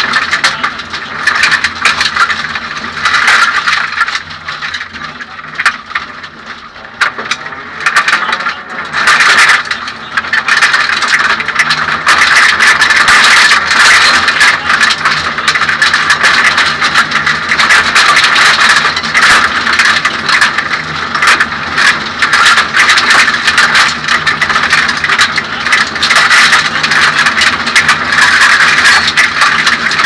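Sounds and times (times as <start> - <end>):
car engine running hard: 0.0 - 30.0
rattling and clatter of car shell: 0.0 - 30.0.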